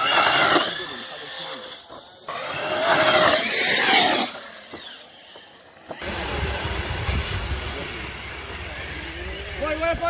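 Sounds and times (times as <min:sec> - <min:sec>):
electric toy truck motor whine: 0:00.0 - 0:09.9.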